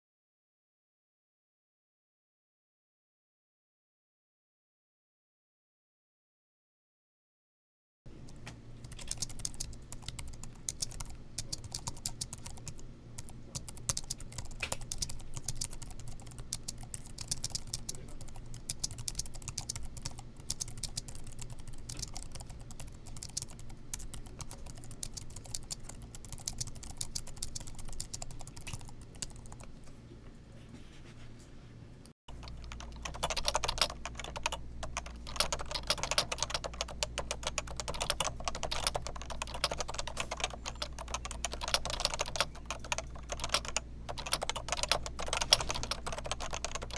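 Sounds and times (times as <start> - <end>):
light high-pitched keyboard typing: 8.2 - 29.8, 32.3 - 46.9
louder lower keyboard clacks: 32.4 - 46.9.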